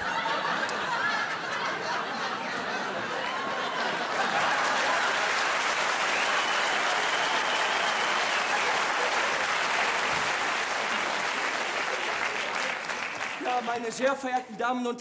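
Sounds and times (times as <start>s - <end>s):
audience applauding: 2.9s - 14.2s.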